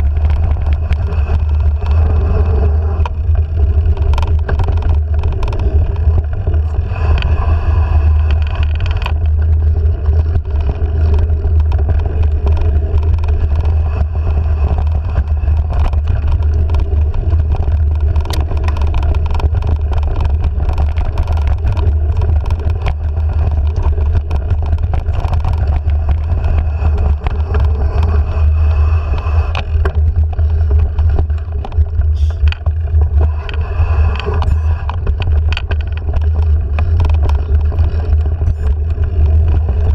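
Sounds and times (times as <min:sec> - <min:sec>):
wind rumble on camera: 0:00.0 - 0:39.9.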